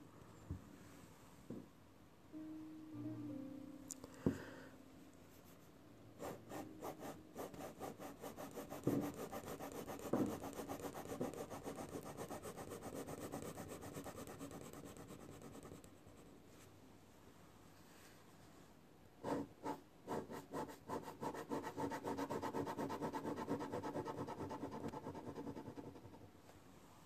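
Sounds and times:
pencil scratching on paper: 6.2 - 16.3, 19.2 - 26.2.

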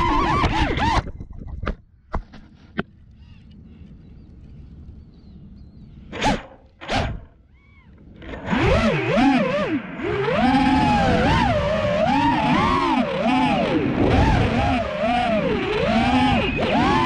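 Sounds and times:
drone motor whine: 6.2 - 17.0.

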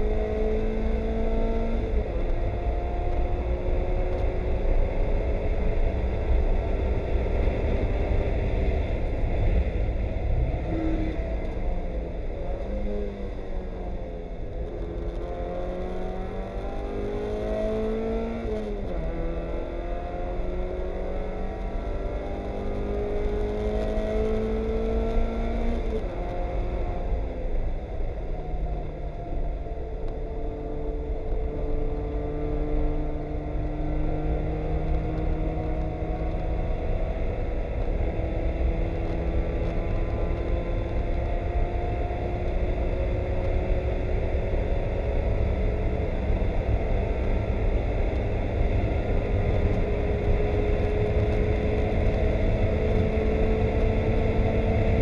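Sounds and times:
race car engine revving: 14.6 - 27.1.

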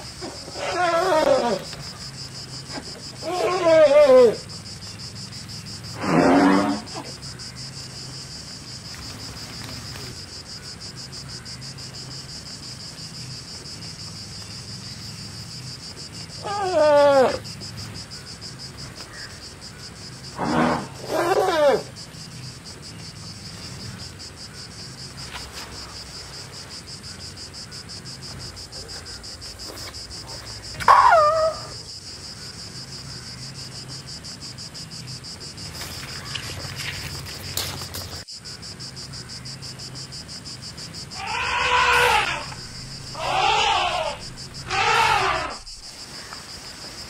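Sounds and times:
forest insects chorus: 0.0 - 47.0
elephant calling: 0.2 - 1.7, 2.7 - 4.4, 20.4 - 21.9, 30.8 - 31.8, 41.1 - 45.8
elephant trumpeting: 0.3 - 1.7, 3.2 - 4.4, 20.4 - 21.9, 41.2 - 45.8.

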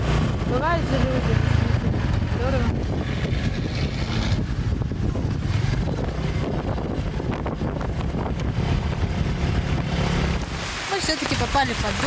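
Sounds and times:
motorbike engine running: 0.0 - 10.5
wind buffeting microphone: 0.0 - 12.0.

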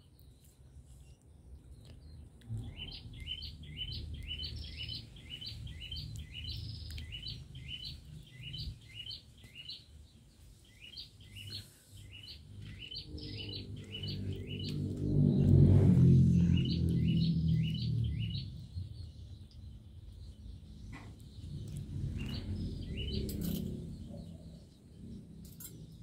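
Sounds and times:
small bird chirping: 0.0 - 26.0
low background rumble: 10.0 - 26.0.

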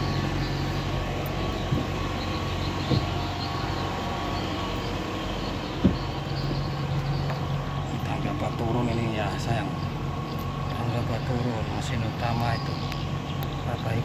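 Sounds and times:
machine hum: 0.0 - 14.0
short knocks: 2.7 - 3.4, 5.8 - 7.4.

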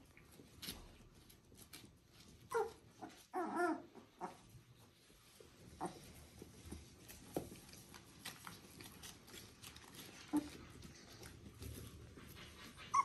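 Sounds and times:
puppies scrabbling on pads: 0.0 - 13.0
faint puppy squeaks: 2.4 - 4.5, 10.1 - 11.2, 12.0 - 13.0.

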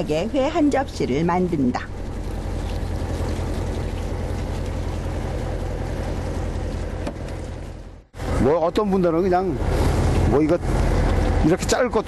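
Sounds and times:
boat engine humming: 0.0 - 12.0
wash of noise: 0.0 - 12.0.

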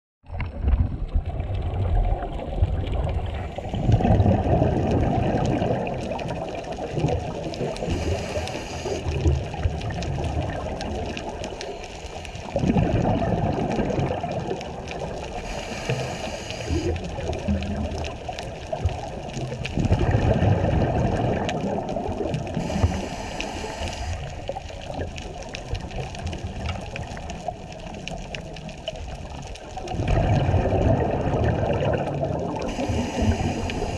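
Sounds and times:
rush of exhaled bubbles: 0.3 - 33.9
hissing regulator inhale: 7.8 - 9.1, 11.6 - 12.6, 15.4 - 17.0, 22.6 - 24.5, 32.7 - 33.9.

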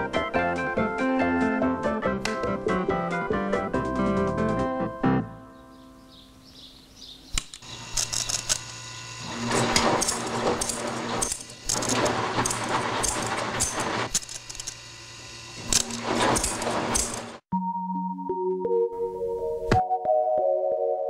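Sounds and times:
scissors clattering metallic rattle: 15.8 - 17.3.

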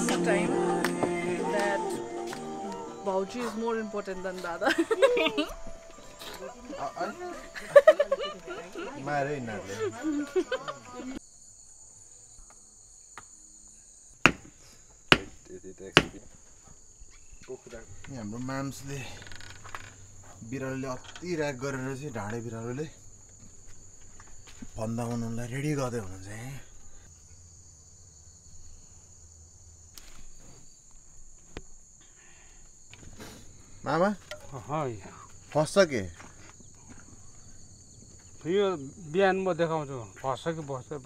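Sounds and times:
crickets chirring: 0.0 - 41.0
sharp knocks: 14.2 - 14.5, 15.1 - 15.4, 16.0 - 16.3.

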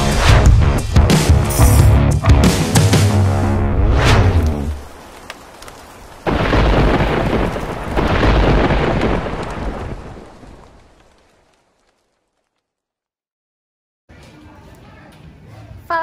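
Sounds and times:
thunder rumbling: 3.1 - 11.5
steady rain: 4.3 - 12.6.

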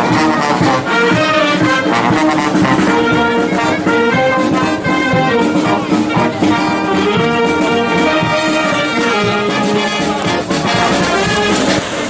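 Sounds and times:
brass band playing: 0.0 - 12.0.

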